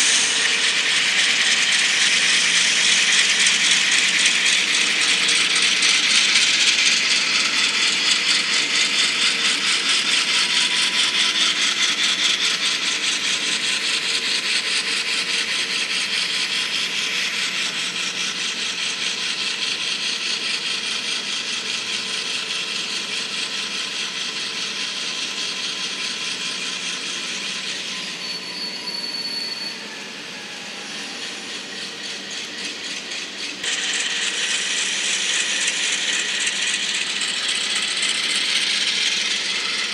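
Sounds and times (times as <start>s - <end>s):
model train wheels clicking on rails: 0.0s - 28.8s, 30.5s - 39.9s.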